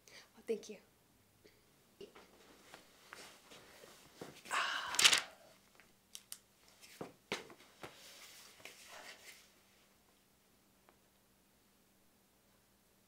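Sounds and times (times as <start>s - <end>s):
clothing and cushion rustle: 2.4s - 4.4s
paper rustle: 4.9s - 5.3s.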